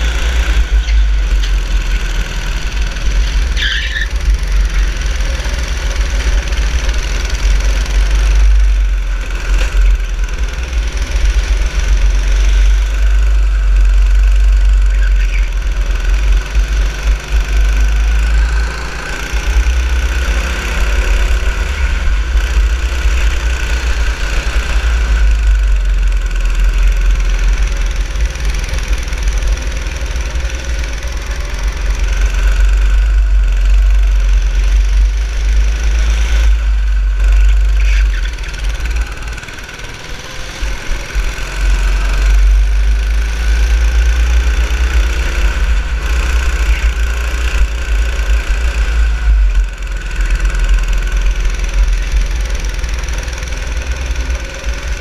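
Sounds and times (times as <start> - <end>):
go-kart engine running: 0.0 - 55.0.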